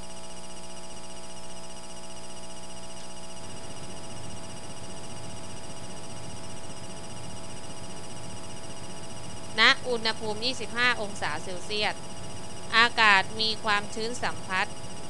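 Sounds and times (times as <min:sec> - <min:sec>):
electrical hum and buzz: 0:00.0 - 0:15.0.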